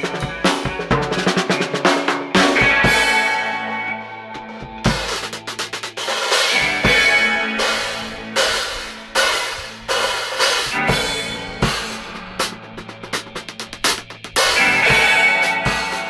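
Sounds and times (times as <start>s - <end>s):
drum kit playing hard: 0.0s - 16.0s
bass guitar low notes: 10.7s - 15.6s.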